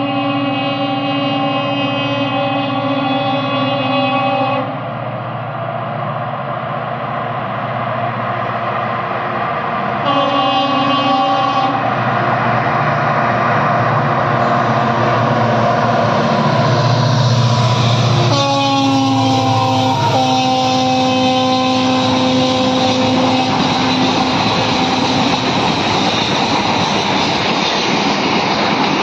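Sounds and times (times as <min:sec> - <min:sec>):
locomotive horn: 0:00.0 - 0:04.8, 0:10.0 - 0:11.9, 0:17.6 - 0:25.6
locomotive engine and wheels rumbling: 0:00.0 - 0:29.0.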